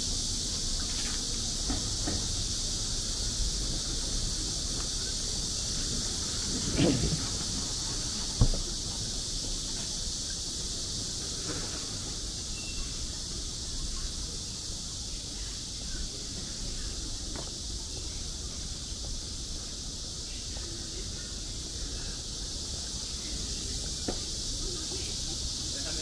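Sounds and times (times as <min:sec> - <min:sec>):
high-pitched hiss: 0:00.0 - 0:26.0
faint knock: 0:08.4 - 0:08.7.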